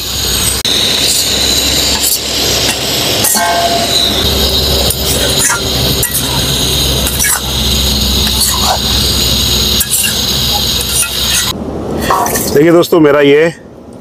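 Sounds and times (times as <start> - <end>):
low rumble and hiss: 0.0 - 14.0
horn-like tone: 3.2 - 4.6.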